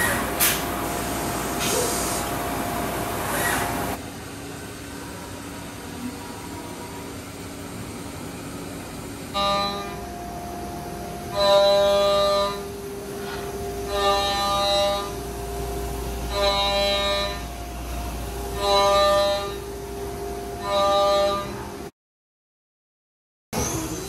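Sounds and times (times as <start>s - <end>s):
mill spindle cutting: 9.2s - 21.6s
horn-like tone: 9.3s - 10.2s, 11.2s - 12.9s, 13.5s - 17.8s, 18.4s - 19.7s, 20.6s - 21.7s.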